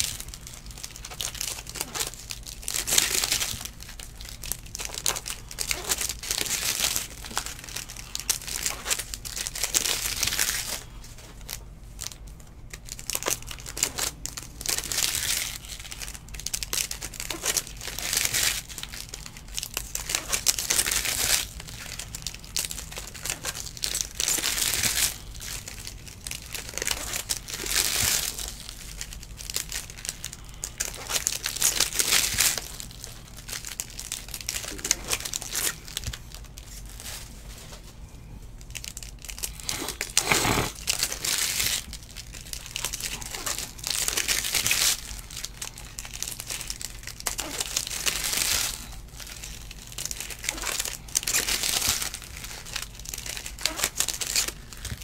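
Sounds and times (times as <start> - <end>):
foil wrappers crinkling and tearing: 0.0 - 55.0
cards sliding and flicking: 39.7 - 40.7.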